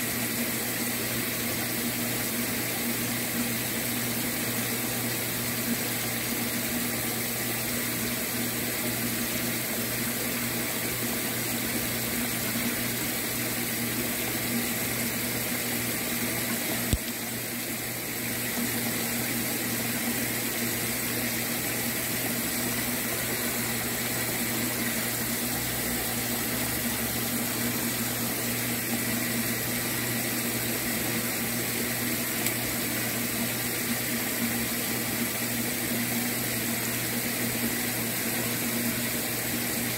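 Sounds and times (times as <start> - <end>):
pump humming: 0.0 - 39.9
water rushing: 3.1 - 37.1.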